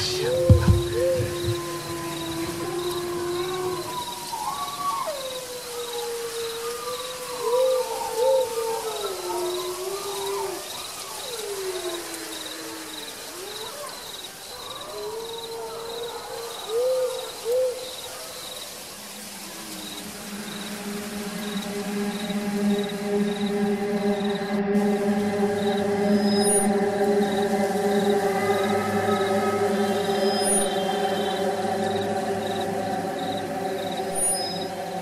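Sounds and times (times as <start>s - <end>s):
low music drone: 0.0s - 4.1s, 19.5s - 35.0s
wavering whistle-like tones: 0.0s - 11.9s, 19.2s - 35.0s
cricket-like chirping: 0.0s - 35.0s.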